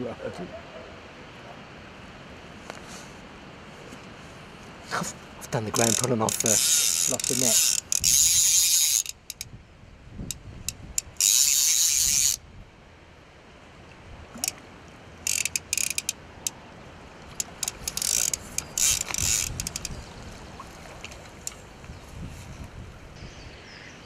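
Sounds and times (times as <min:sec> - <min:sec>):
fishing reel ratchet buzzing: 0:05.7 - 0:09.5, 0:10.7 - 0:12.4, 0:15.2 - 0:16.2, 0:17.5 - 0:20.0
reel clicks: 0:05.7 - 0:09.5, 0:10.2 - 0:12.4, 0:14.3 - 0:14.6, 0:15.2 - 0:16.6, 0:17.3 - 0:20.0, 0:21.0 - 0:21.6.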